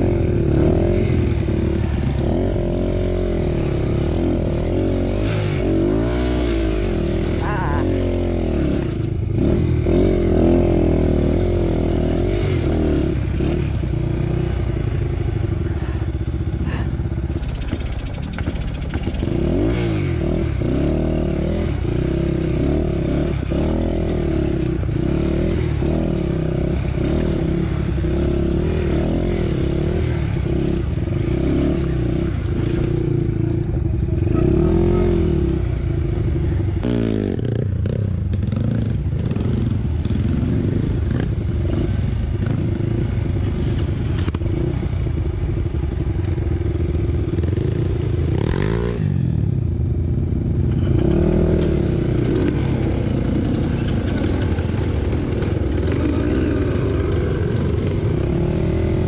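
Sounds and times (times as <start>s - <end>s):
dirt bike engine revving: 0.0s - 16.0s, 16.6s - 46.1s, 46.7s - 49.3s, 50.7s - 59.0s.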